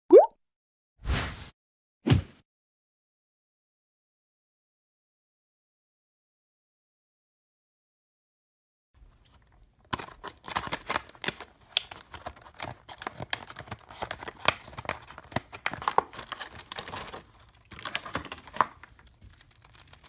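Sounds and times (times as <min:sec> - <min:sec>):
scissors snipping plastic: 0:09.2 - 0:20.0.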